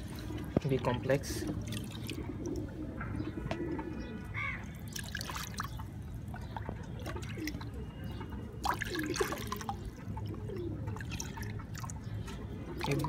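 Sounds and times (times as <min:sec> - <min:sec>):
water pouring: 0:00.0 - 0:02.3, 0:04.8 - 0:07.8, 0:08.6 - 0:12.0, 0:12.8 - 0:13.0
water dripping and splashing: 0:00.0 - 0:02.7, 0:04.6 - 0:13.0.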